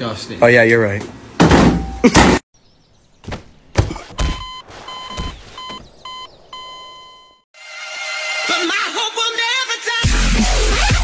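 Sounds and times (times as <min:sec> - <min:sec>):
buzzy electronic alarm beeps: 0:04.3 - 0:07.5.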